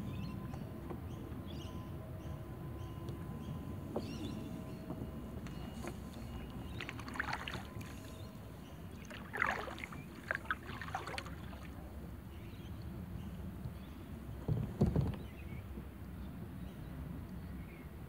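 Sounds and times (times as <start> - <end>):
paddle splashing in water: 5.5 - 8.3, 8.9 - 12.0.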